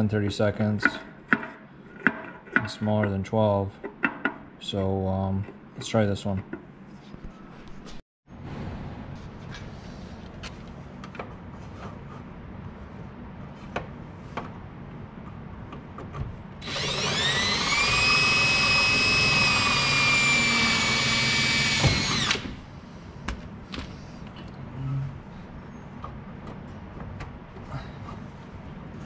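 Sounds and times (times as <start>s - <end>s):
power drill whining: 16.6s - 22.6s.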